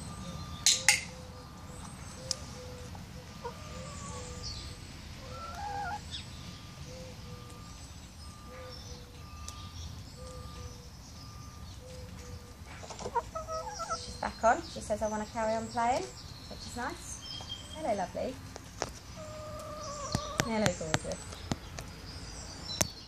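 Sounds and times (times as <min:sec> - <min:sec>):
hens clucking: 0:02.2 - 0:07.7, 0:11.9 - 0:16.9, 0:17.8 - 0:21.9.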